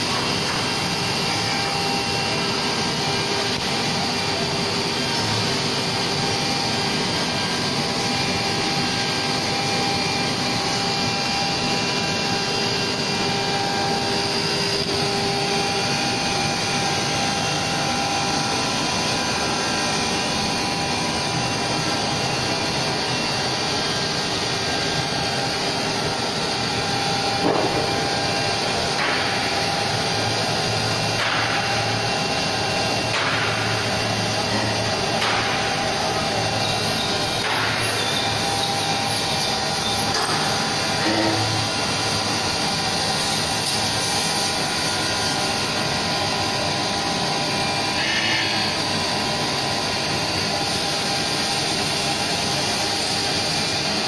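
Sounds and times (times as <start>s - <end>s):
wood router machine whine: 0.0s - 54.0s
sharp knock: 27.4s - 27.9s.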